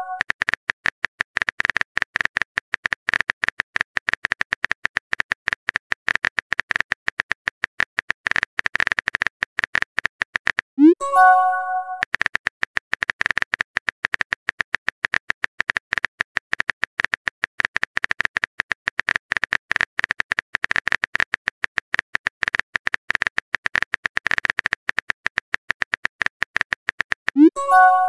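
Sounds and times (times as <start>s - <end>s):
message sent chime: 0.0s - 0.2s, 10.8s - 12.0s, 27.4s - 28.0s.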